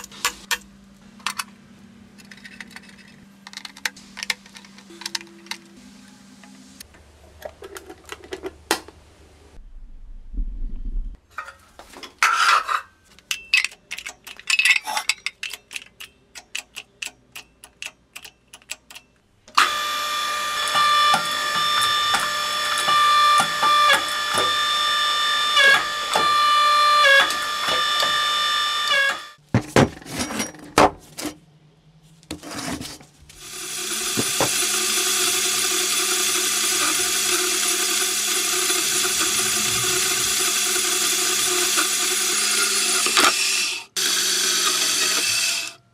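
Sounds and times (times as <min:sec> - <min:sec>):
power tool running: 0:19.6 - 0:29.4, 0:33.3 - 0:45.8
loud steady machine noise: 0:33.4 - 0:45.8.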